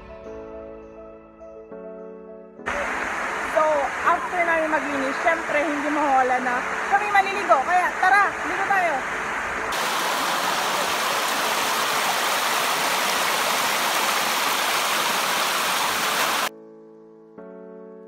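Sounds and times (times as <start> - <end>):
soft piano music: 0.0 - 2.9, 16.5 - 18.0
waterfall rushing over rocks: 2.7 - 16.5.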